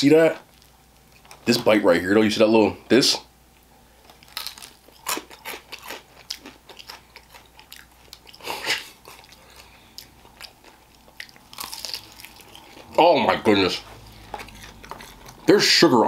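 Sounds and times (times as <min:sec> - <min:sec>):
crunchy chewing: 0:04.0 - 0:15.8.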